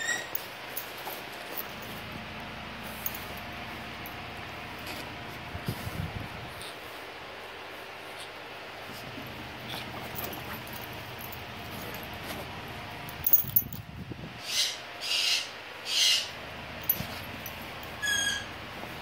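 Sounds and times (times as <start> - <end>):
toy squeak: 0.0 - 0.4, 18.0 - 18.5
collar tags clinking: 0.1 - 5.1, 9.5 - 13.9, 16.7 - 18.1.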